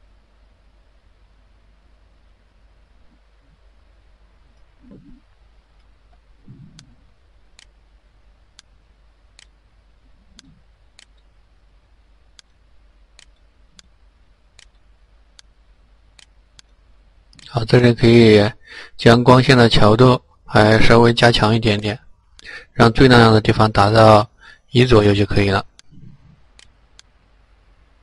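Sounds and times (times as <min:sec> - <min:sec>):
soft low thuds: 0:03.0 - 0:07.5
computer mouse clicking: 0:05.8 - 0:07.8, 0:08.5 - 0:09.6, 0:10.3 - 0:11.3, 0:12.3 - 0:15.5, 0:25.7 - 0:27.2.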